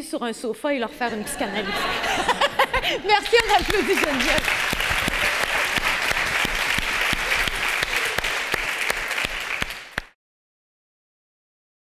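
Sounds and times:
audience applauding: 2.0 - 10.2.

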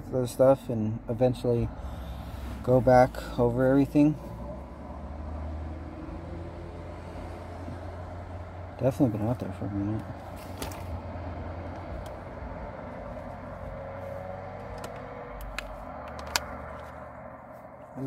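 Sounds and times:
low vehicle rumble: 0.0 - 18.0
phone handling clicks: 14.6 - 17.0.

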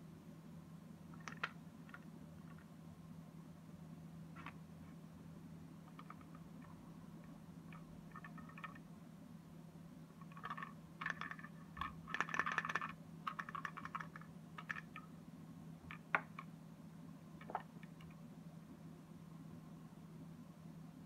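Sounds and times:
wooden puzzle box panels clicking: 10.2 - 15.0.

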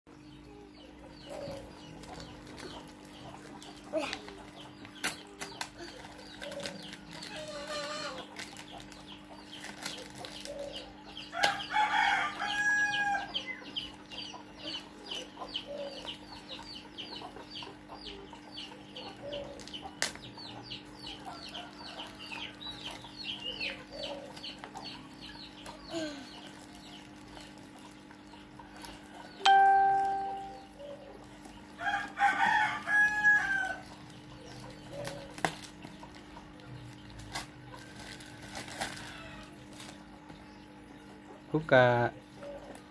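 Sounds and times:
packaging rustling: 5.6 - 10.7, 37.0 - 40.0
rooster crowing: 11.4 - 13.4, 31.8 - 33.8.

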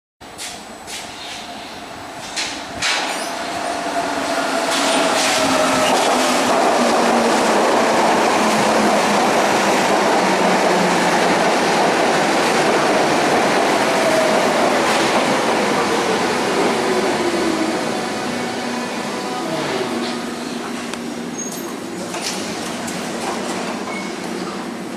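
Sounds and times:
train wheels rumbling on rails: 0.3 - 24.9.

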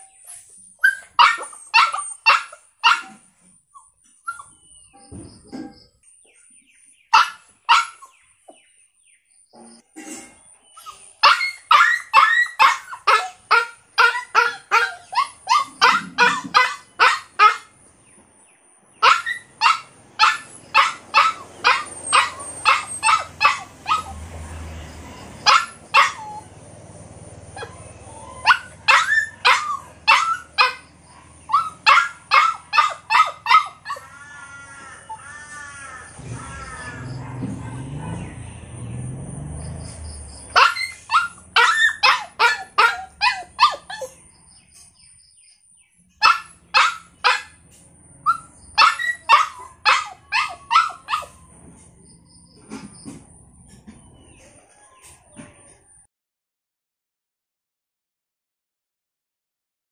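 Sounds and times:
dog barking: 1.1 - 3.2, 7.1 - 8.1, 11.2 - 17.7, 19.0 - 24.2, 25.2 - 26.5, 28.4 - 34.1, 36.6 - 38.5, 40.5 - 44.2, 46.2 - 47.6, 48.2 - 51.4.

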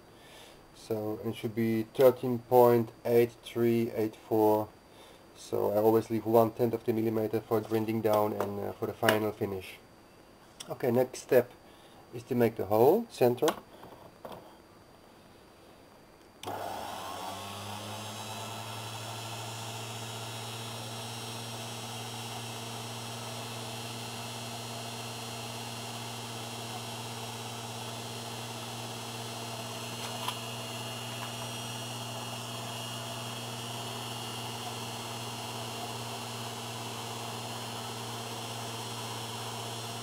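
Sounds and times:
lathe motor humming: 16.4 - 40.0.

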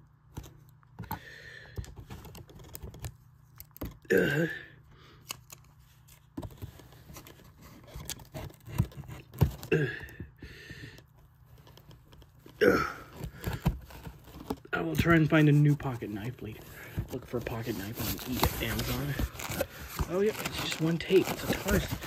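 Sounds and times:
cardboard rustling: 1.8 - 4.0, 5.4 - 9.7, 11.2 - 22.0.

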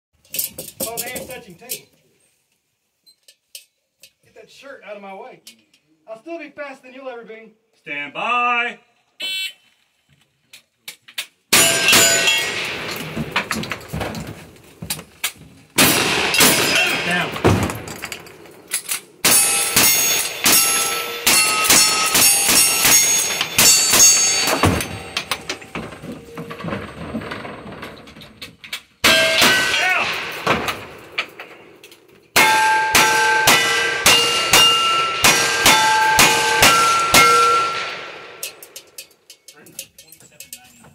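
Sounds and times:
steel plates ringing: 11.5 - 13.9, 15.8 - 28.2, 29.0 - 40.6
rifle shots: 15.8 - 18.5.

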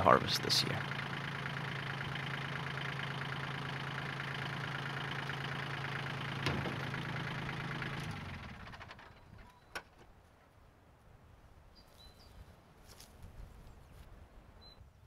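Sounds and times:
tractor diesel engine idling: 0.0 - 9.7.

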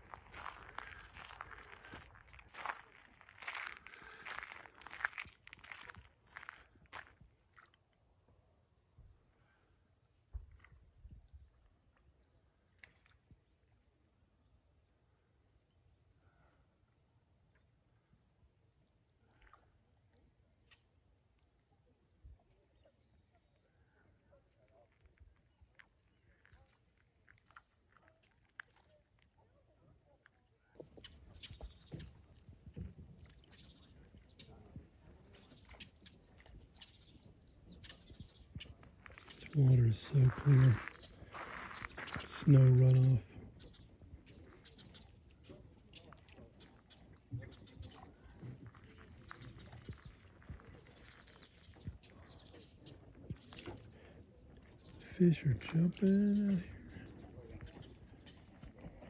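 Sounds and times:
ducks splashing in water: 0.0 - 7.7, 40.3 - 42.8
ducks dabbling at water surface: 0.0 - 7.9, 24.0 - 59.0
faint bird chirps: 30.6 - 55.0.

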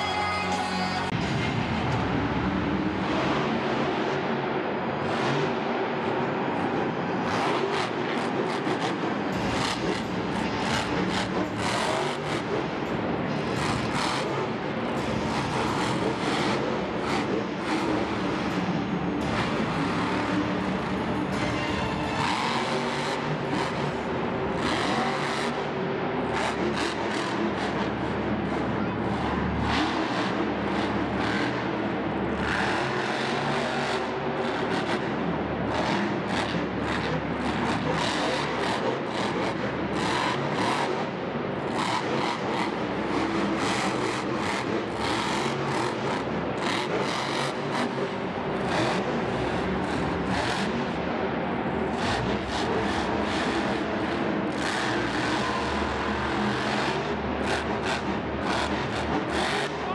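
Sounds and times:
monster truck engine surging: 0.0 - 59.9.

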